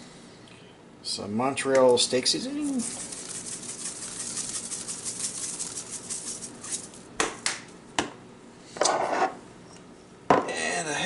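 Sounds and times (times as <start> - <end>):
seasoning shaker rattling: 2.2 - 7.1.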